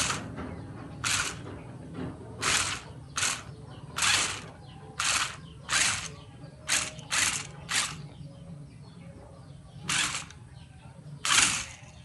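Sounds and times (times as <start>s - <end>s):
toy car motor bursts: 0.0s - 0.3s, 1.0s - 1.4s, 2.4s - 8.0s, 9.9s - 10.4s, 11.2s - 12.0s.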